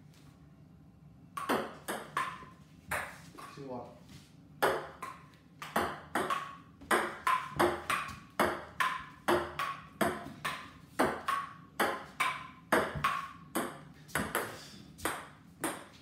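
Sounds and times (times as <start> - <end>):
ping-pong ball clicking: 4.6 - 14.4.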